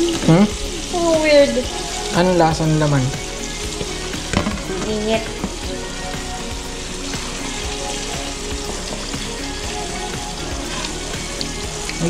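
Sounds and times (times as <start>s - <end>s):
fish frying in hot oil: 0.0s - 12.0s.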